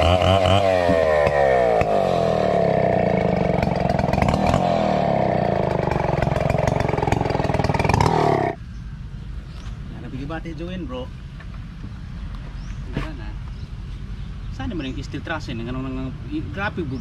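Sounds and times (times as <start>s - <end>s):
chainsaw cutting log: 0.0s - 8.6s.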